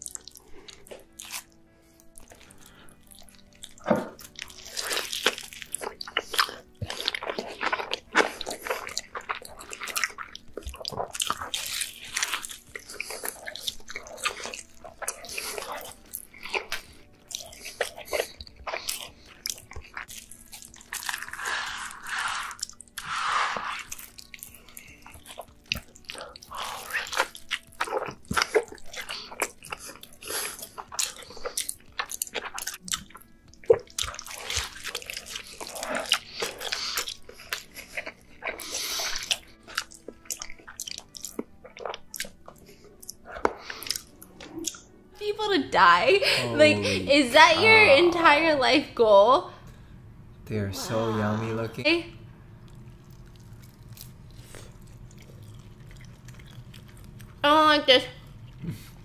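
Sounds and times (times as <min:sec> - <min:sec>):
person chewing crunchy food: 0:00.0 - 0:45.1, 0:52.5 - 0:57.5, 0:58.1 - 0:59.0.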